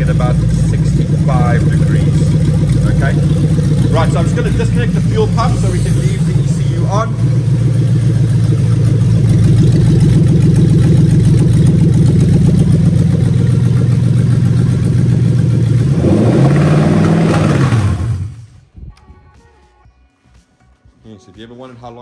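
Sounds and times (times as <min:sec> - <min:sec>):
engine running and stalling: 0:00.0 - 0:18.6.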